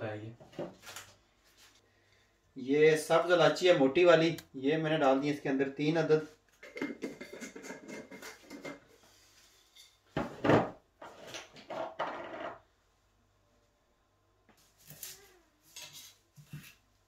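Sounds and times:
kitchen utensils handled: 0:06.6 - 0:08.8.

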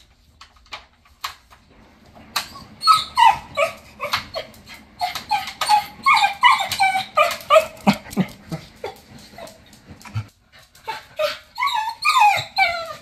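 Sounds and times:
dog whimpering and yipping: 0:02.4 - 0:09.7, 0:10.8 - 0:13.0.

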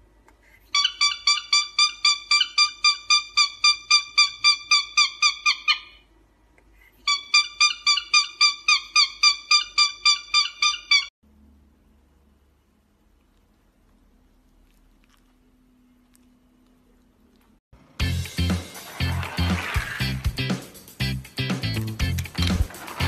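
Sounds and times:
cockatiel chirping rapidly: 0:00.7 - 0:06.0, 0:07.1 - 0:11.1.

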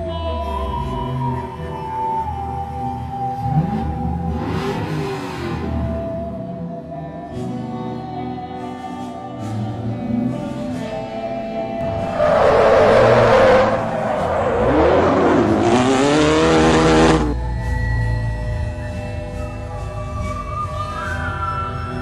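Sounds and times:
background music: 0:00.0 - 0:22.0
game car engine: 0:03.3 - 0:06.5, 0:11.8 - 0:17.4
tyres screeching: 0:11.8 - 0:17.3
sliding pitch sound effects: 0:11.8 - 0:17.4.

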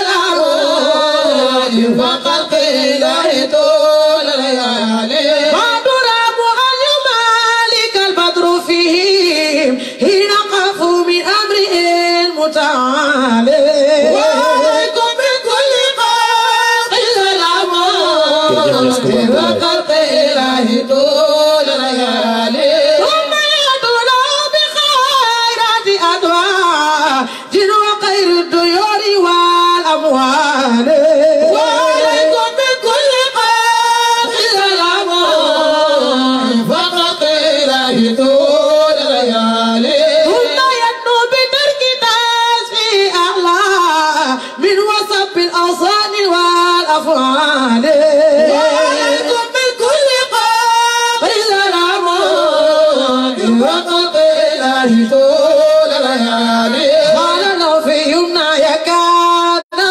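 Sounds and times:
person singing ornamented melody: 0:17.7 - 0:19.9.

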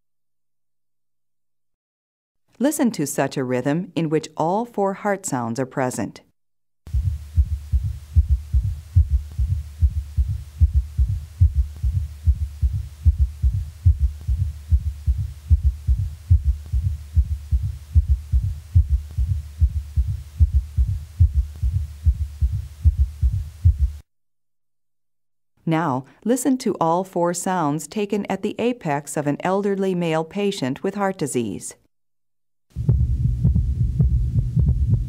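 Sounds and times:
heartbeat through stethoscope: 0:06.9 - 0:24.0, 0:32.7 - 0:35.0.

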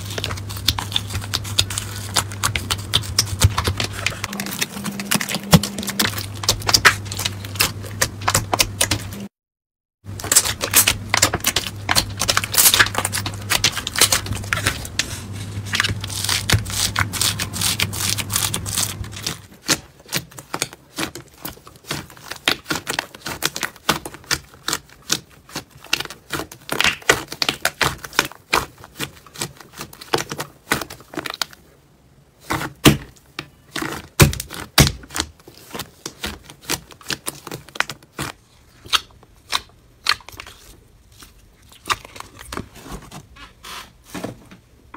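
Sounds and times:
hands pressing crackly slime: 0:00.0 - 0:09.3, 0:10.1 - 0:31.7, 0:32.4 - 0:42.8
low hum: 0:00.2 - 0:09.3.

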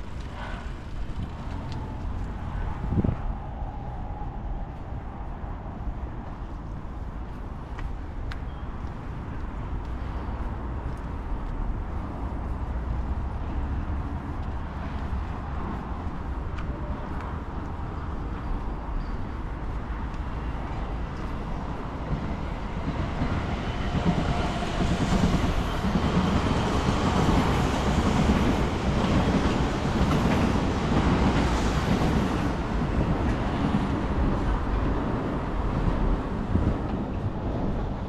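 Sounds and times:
electric train passing: 0:00.0 - 0:07.0, 0:12.0 - 0:38.0.

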